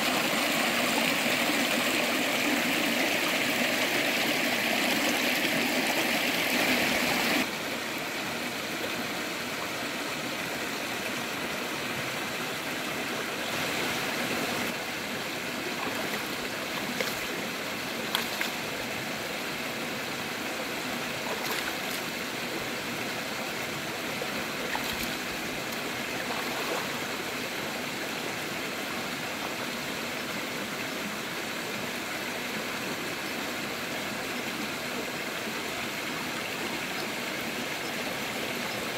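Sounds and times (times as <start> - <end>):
river flowing over rocks: 0.0 - 38.9
water splashes: 13.5 - 19.2, 21.1 - 22.7, 24.4 - 27.4.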